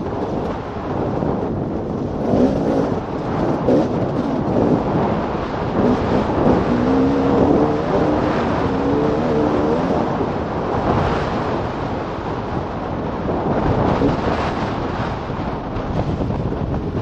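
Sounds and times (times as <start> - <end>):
dirt bike engine accelerating: 0.0 - 11.6
wind noise on microphone: 0.0 - 17.0.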